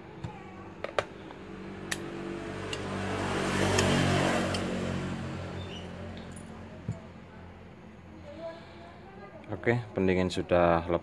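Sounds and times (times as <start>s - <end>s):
motor vehicle passing by: 1.1s - 9.1s.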